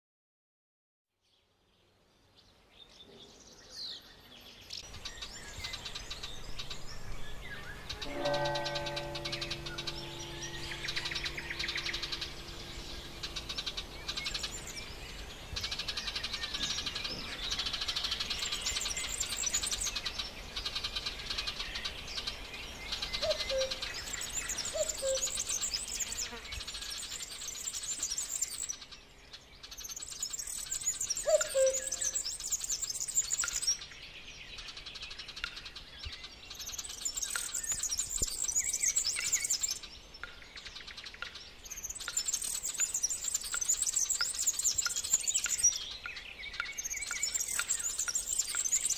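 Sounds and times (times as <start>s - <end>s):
songbirds chirping and trilling: 1.2s - 48.9s
held musical chord: 7.7s - 14.9s
short lower bird calls: 23.1s - 26.4s, 30.7s - 33.6s.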